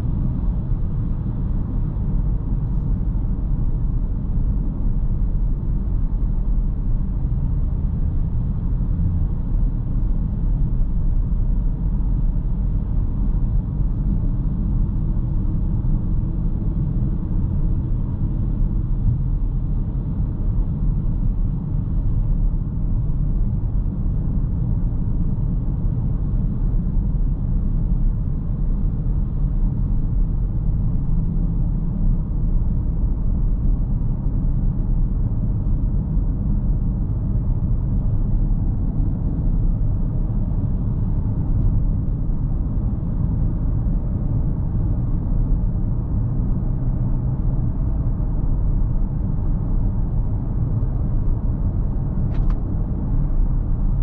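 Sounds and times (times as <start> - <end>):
car engine and road noise: 0.0 - 54.0.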